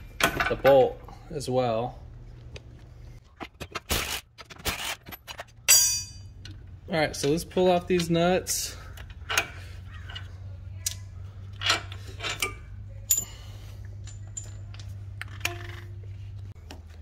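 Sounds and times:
metallic clicks of wrenches and nuts: 0.0s - 1.1s, 3.3s - 16.8s
steady low hum: 0.0s - 3.4s.

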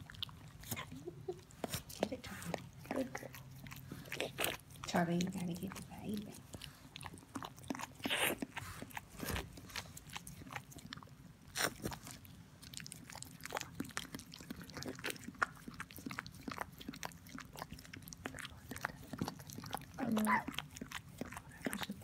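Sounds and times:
dog licking with wet clicks: 11.9s - 22.0s.

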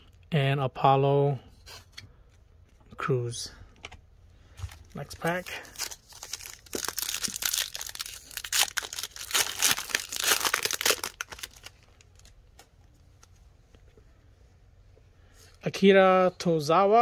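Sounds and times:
plastic wrapper crackling: 4.7s - 12.7s.

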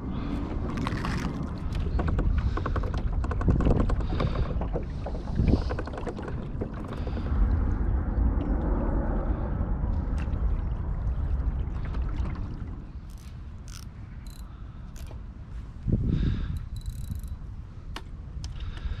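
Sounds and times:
water churning around boat hull: 0.0s - 17.3s
gear clicking and knocking: 1.7s - 7.1s, 13.1s - 14.4s.

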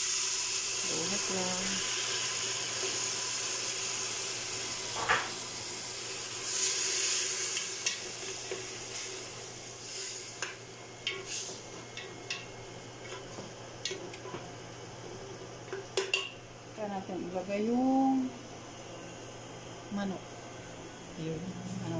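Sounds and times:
sauce sizzling in hot oil: 0.0s - 17.5s.

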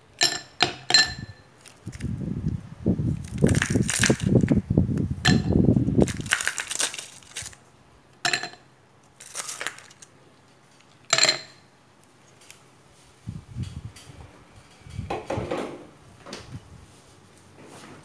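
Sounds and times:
ice cubes clinking in cup: 3.2s - 4.5s, 6.0s - 7.6s, 9.2s - 10.1s.

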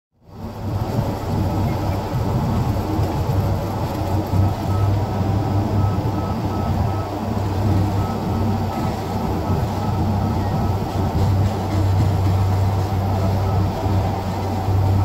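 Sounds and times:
diesel crane engine rumbling: 0.2s - 15.0s
faint warning beeper: 4.3s - 11.4s, 12.0s - 14.0s.

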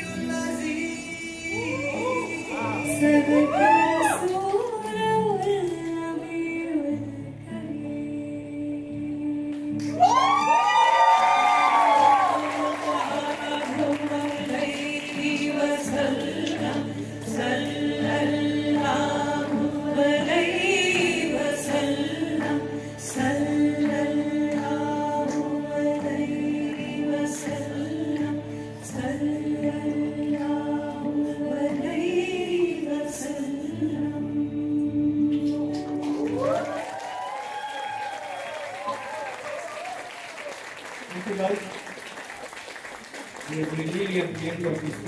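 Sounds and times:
voices singing together: 0.0s - 5.2s, 11.6s - 36.7s
acoustic guitar: 0.0s - 39.3s.

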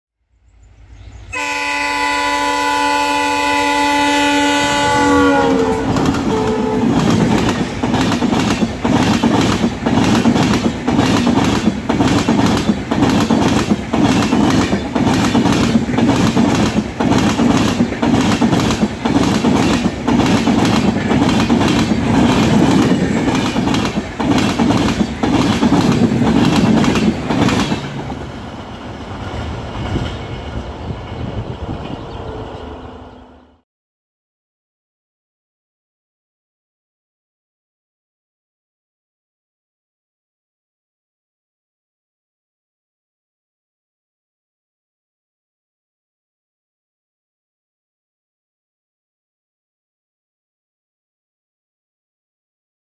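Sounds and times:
locomotive horn: 1.3s - 7.1s
train wheels clattering: 5.9s - 32.0s.

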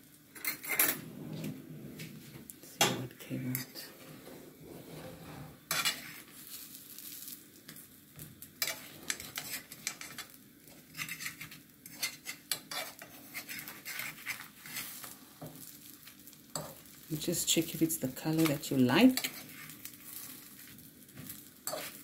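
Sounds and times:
faint sizzle of frying: 0.0s - 22.0s
fork scraping frying pan: 4.0s - 6.3s, 8.6s - 15.2s, 19.1s - 22.0s.

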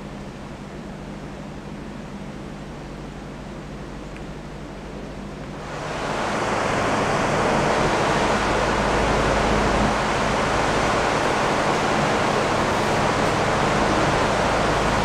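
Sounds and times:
steady rushing noise: 4.0s - 15.0s.

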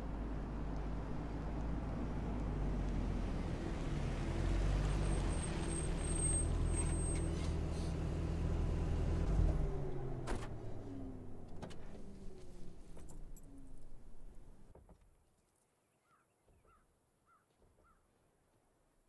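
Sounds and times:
car engine running low: 0.0s - 14.7s
engine cutting off thump: 2.3s - 14.9s.

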